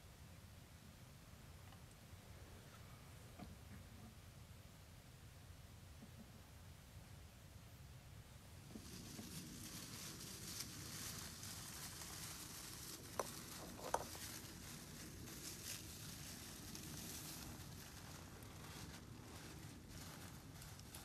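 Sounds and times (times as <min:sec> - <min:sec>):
rustling in dry leaves: 0:08.6 - 0:21.0.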